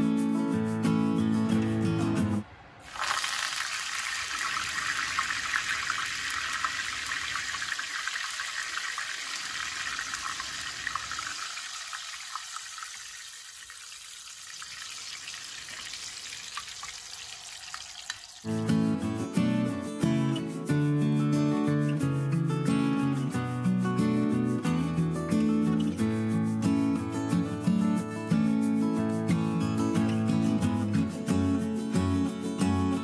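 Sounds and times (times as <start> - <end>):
leaves sizzling in hot oil: 2.9 - 18.5.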